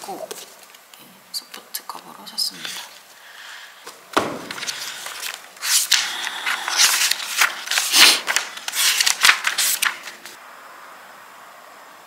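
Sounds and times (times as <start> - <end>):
light ticks of falling pages: 3.8 - 10.4
paper pages leafed through: 3.8 - 10.4.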